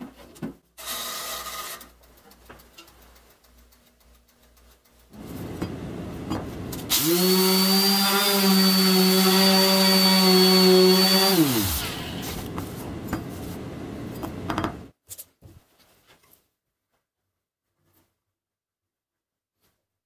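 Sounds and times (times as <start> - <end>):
orbital sander whining: 5.2 - 14.8.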